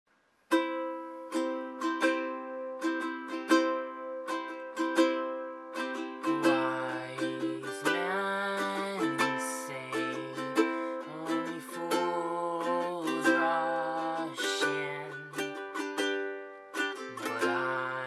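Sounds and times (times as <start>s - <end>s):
ukulele plucked chords: 0.5s - 18.0s
man singing: 6.2s - 15.6s, 17.0s - 18.0s.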